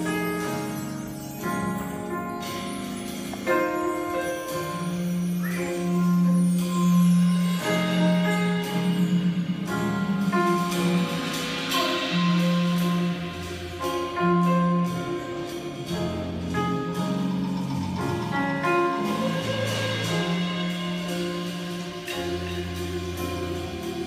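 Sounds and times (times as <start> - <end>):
jazz band and orchestra playing: 0.0 - 24.0.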